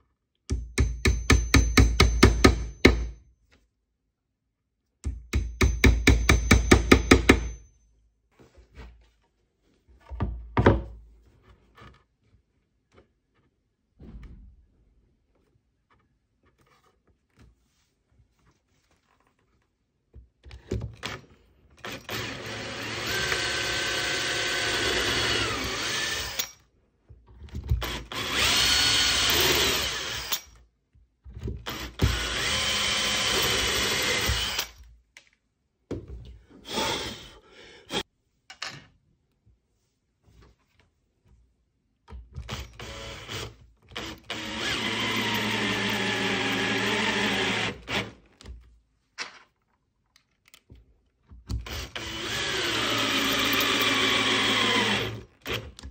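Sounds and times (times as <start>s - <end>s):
cordless drill boring into wood: 21.8s - 26.6s, 27.8s - 30.5s, 31.6s - 34.8s, 36.6s - 37.3s, 42.4s - 48.2s, 51.5s - 55.9s.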